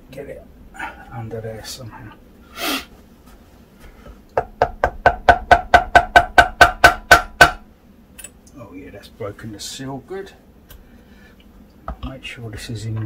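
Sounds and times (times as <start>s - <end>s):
rubber mallet knocking on metal: 4.4s - 7.6s.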